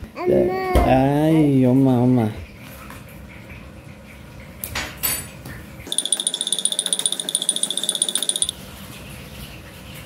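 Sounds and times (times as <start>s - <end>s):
electronic alarm buzzer pulsing: 5.9s - 8.5s.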